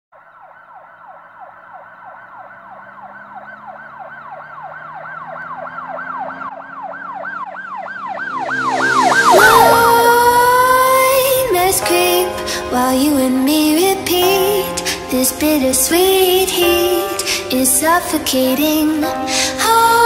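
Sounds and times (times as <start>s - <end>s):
siren-like sweeping wail: 0.2s - 12.0s
held rising tone with noise: 0.3s - 12.0s.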